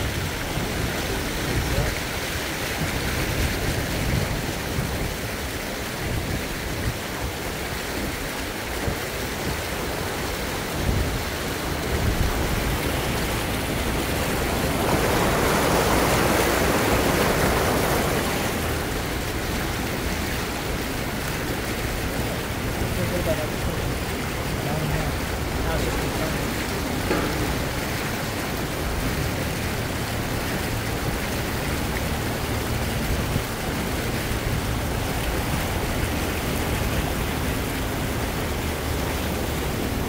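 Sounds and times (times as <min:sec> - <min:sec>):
rushing water: 0:00.0 - 0:40.0
wind buffeting microphone: 0:00.0 - 0:40.0.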